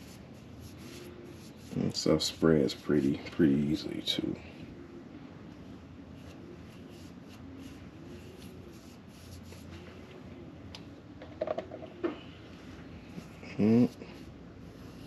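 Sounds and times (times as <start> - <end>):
paintbrush brushing: 0.0 - 3.8, 6.1 - 9.9, 13.0 - 15.0.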